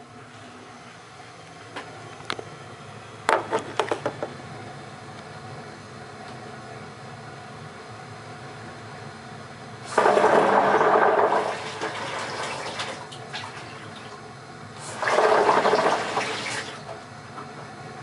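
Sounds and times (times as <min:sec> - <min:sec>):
water heater clunking and rushing: 0:09.9 - 0:17.0.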